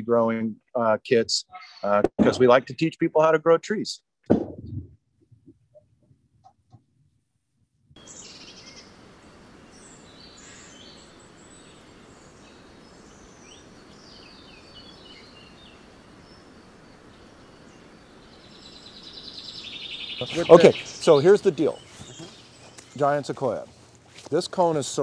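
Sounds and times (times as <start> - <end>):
birds chirping: 8.0 - 25.0
steady background hiss: 8.0 - 25.0.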